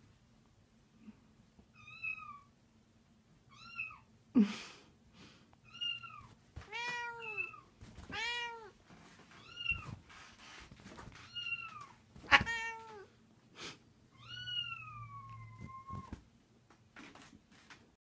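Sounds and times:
cats meowing: 5.7 - 10.1, 11.2 - 13.1, 14.2 - 16.2.

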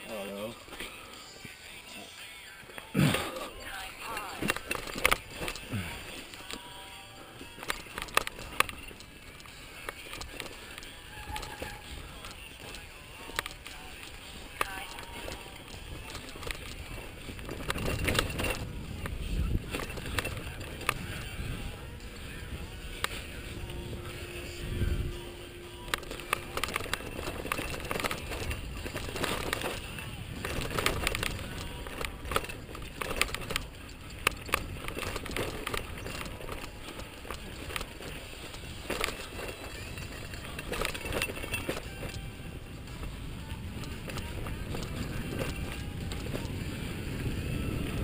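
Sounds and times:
tyres rumbling on dirt trail: 0.0 - 48.0
bike rattling over rocks: 2.4 - 48.0
wind on microphone: 15.1 - 36.5, 37.5 - 48.0.

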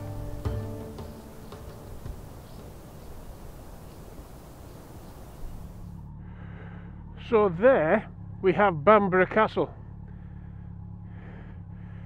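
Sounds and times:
music track: 0.0 - 2.8
low background rumble: 0.0 - 12.0.

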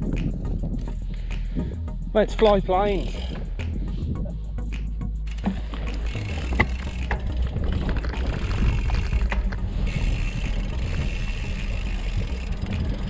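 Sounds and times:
wind: 0.0 - 13.0
tyres rumbling on tarmac: 5.4 - 13.0.

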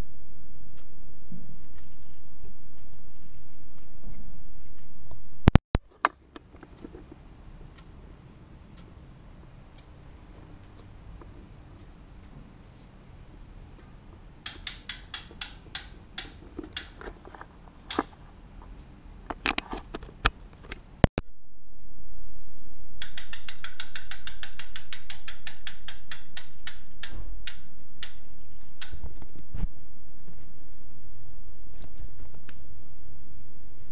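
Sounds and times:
steady microphone hiss: 0.0 - 33.9
bicycle hub freewheel clicking: 14.4 - 17.0, 23.0 - 29.1.

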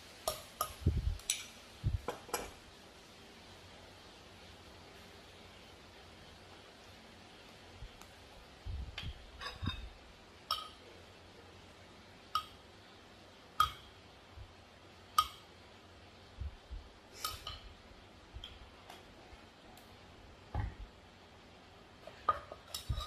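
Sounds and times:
metal spoon clinking: 10.5 - 10.8, 13.6 - 13.9, 17.2 - 17.7.

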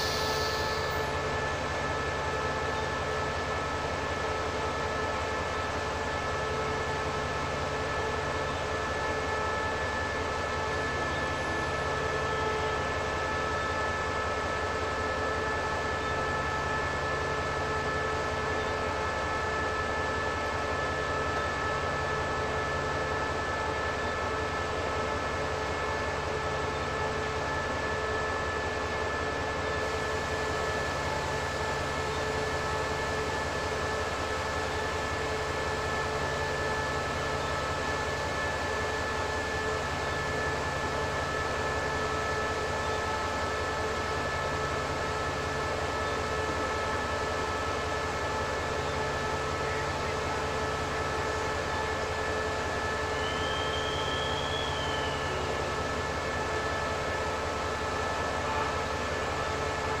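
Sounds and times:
faint high chirp: 53.1 - 55.4.

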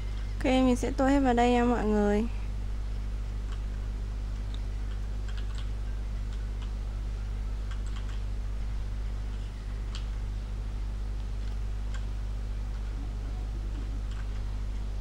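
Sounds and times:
low electrical hum: 0.0 - 15.0
computer keyboard clicks: 4.4 - 5.7, 7.7 - 8.2, 14.0 - 14.4.

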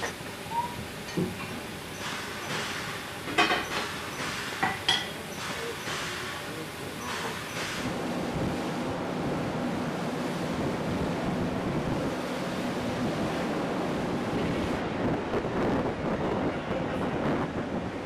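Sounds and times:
wind buffeting microphone: 14.0 - 18.0.

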